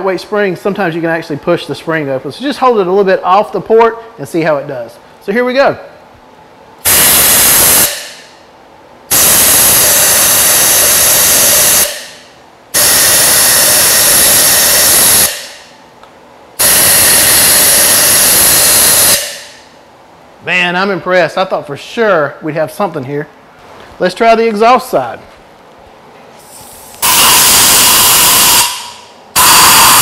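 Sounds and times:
air blow gun hissing: 0:06.9 - 0:08.3, 0:09.1 - 0:12.2, 0:12.8 - 0:15.7, 0:16.6 - 0:19.6, 0:26.4 - 0:30.0.

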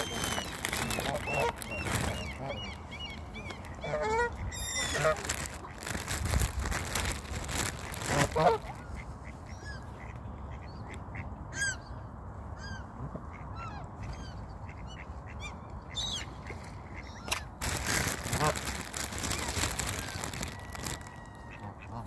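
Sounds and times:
geese honking: 0:00.0 - 0:02.8, 0:03.7 - 0:05.8, 0:07.8 - 0:09.0
gulls squawking: 0:00.0 - 0:06.0, 0:07.6 - 0:09.8, 0:17.0 - 0:22.0.

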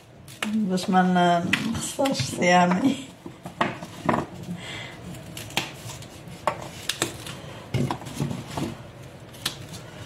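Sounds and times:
bean pods snapping: 0:00.2 - 0:00.7, 0:06.8 - 0:07.3, 0:09.3 - 0:09.8.

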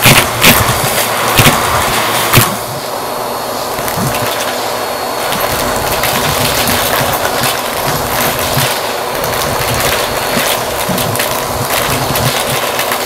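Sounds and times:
vacuum suction rush: 0:00.0 - 0:13.0
coin clattering up vacuum hose: 0:05.2 - 0:13.0
small pieces rattling through hose: 0:05.2 - 0:13.0.

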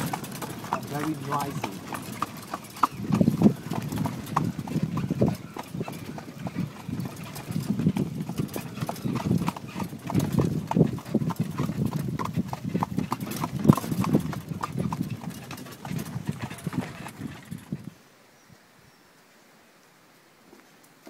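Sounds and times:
horse hooves clip-clopping on dirt: 0:00.0 - 0:18.0.

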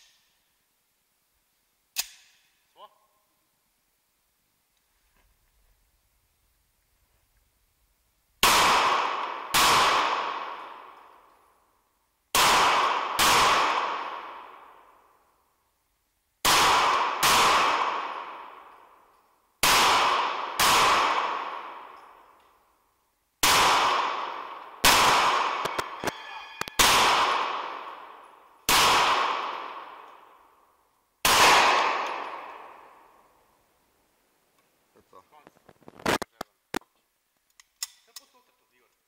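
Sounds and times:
pistol shots echoing: 0:08.4 - 0:11.3, 0:12.3 - 0:15.2, 0:16.4 - 0:19.0, 0:19.6 - 0:22.4, 0:23.4 - 0:33.3.

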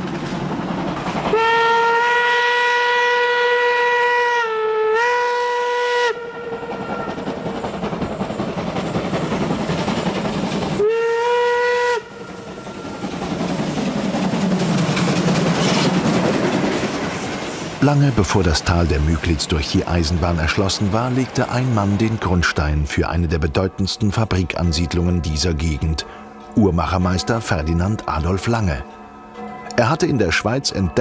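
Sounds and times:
train running on track: 0:00.0 - 0:31.0
steam locomotive whistle: 0:01.3 - 0:07.3, 0:10.8 - 0:13.0.

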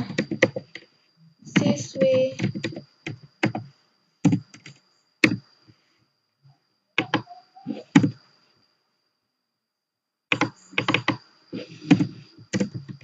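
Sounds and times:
keyboard typing: 0:00.0 - 0:00.9, 0:01.5 - 0:05.4, 0:07.0 - 0:08.2, 0:10.3 - 0:13.0
faint high-pitched whine: 0:00.0 - 0:13.0.

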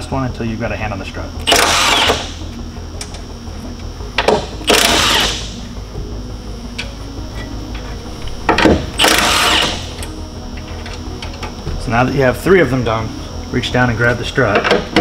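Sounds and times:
impact wrench hammering: 0:01.4 - 0:02.4, 0:04.2 - 0:05.5, 0:08.5 - 0:10.1.

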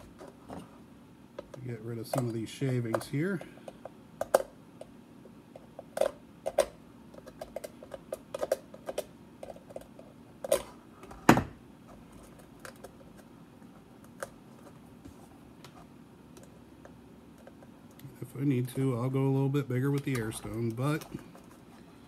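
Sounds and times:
plastic parts clicking and knocking: 0:01.4 - 0:04.9, 0:05.5 - 0:10.7.

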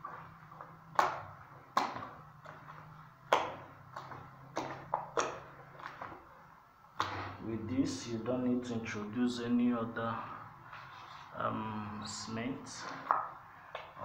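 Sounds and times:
wet putty slaps and squelches: 0:00.9 - 0:06.2.

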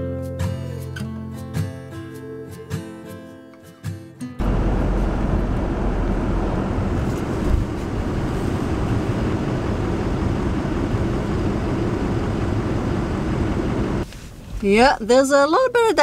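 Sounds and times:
rough sea rumble: 0:04.4 - 0:14.0
storm wind on microphone: 0:04.4 - 0:14.0.

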